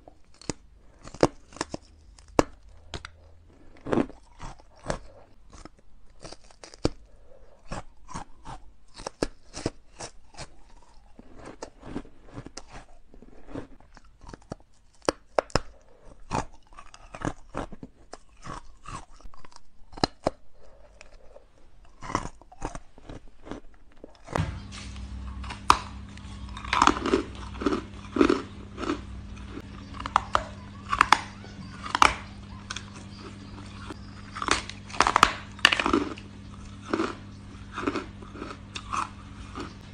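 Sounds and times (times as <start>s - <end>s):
crunching ice: 0.0s - 39.9s
low hum: 24.4s - 39.9s.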